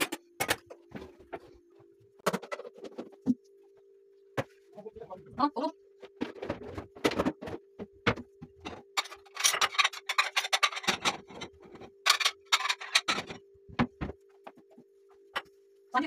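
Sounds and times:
dishes and utensils clinking: 8.5 - 14.0.

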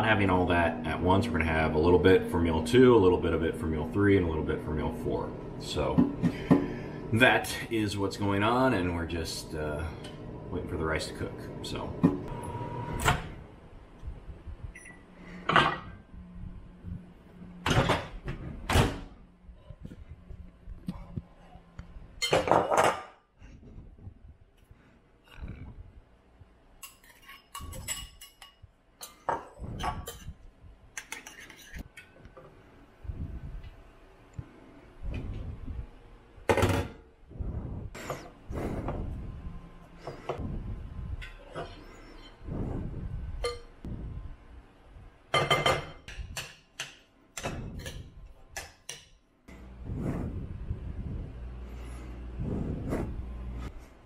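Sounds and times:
metal spoon clinking on ceramic bowls: 26.8 - 29.3.

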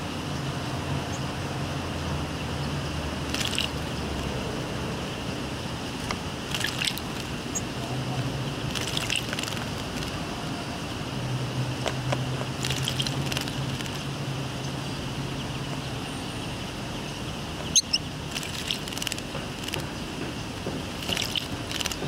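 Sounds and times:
bird splashing wings in water: 3.2 - 4.4, 6.0 - 7.5, 8.6 - 10.3, 12.4 - 14.1, 18.3 - 19.8, 20.9 - 22.0.

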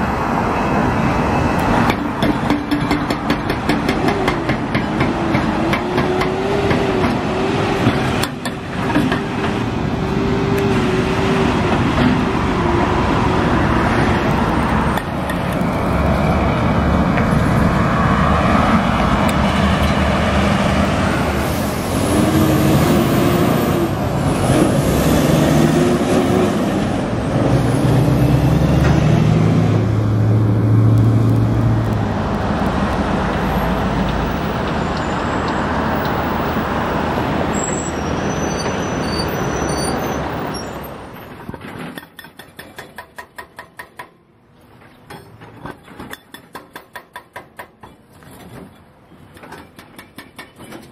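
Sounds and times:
diesel trucks driving past: 0.0 - 41.8
traffic noise: 0.0 - 50.9.

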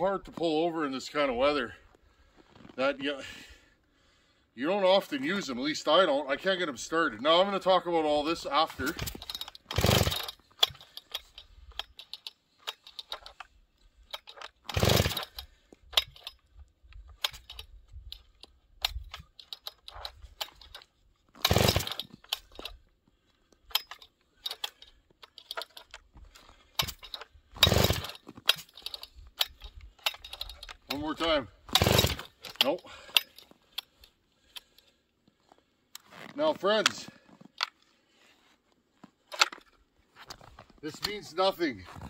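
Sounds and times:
chainsaw recoil starter pulls: 8.4 - 22.9, 23.6 - 34.9, 39.2 - 42.0.

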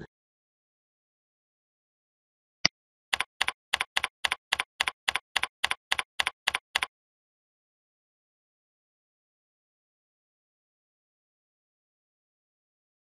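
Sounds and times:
keyboard keystrokes: 3.2 - 6.9.

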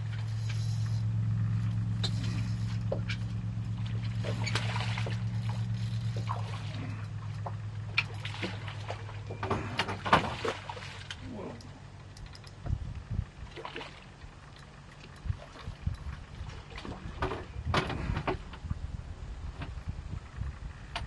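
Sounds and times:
boat motor humming: 0.0 - 21.0
water splashing: 3.6 - 11.6, 13.4 - 14.4.

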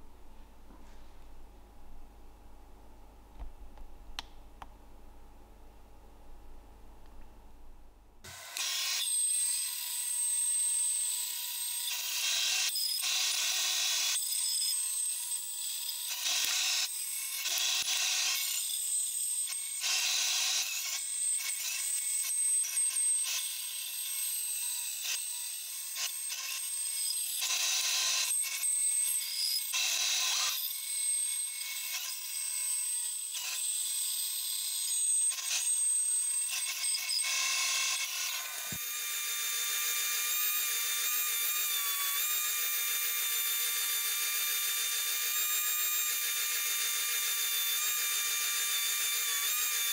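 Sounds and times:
bandsaw cutting plywood: 8.2 - 49.9.

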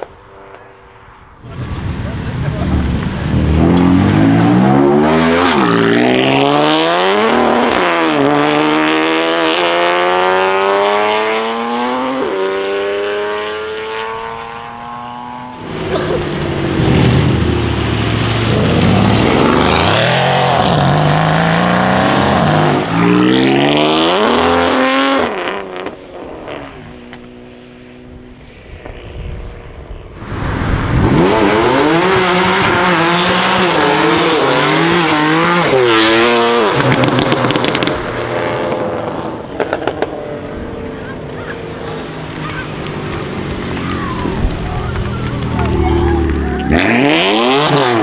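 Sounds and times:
car engine revving: 1.4 - 28.1, 30.2 - 48.0.

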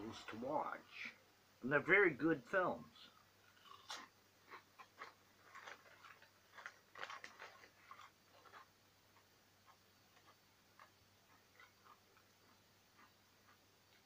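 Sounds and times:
chip bag crinkling: 3.6 - 8.7.

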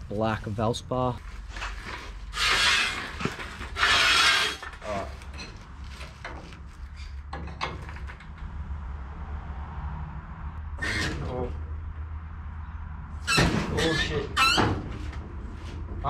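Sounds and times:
metal scraping clatter: 1.5 - 8.5.

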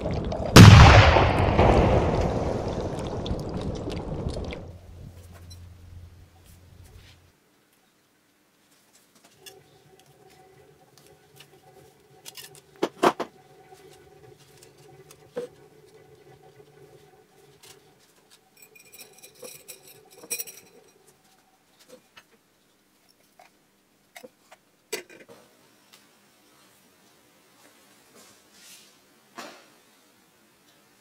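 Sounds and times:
wire clinking against glass: 18.5 - 21.1.

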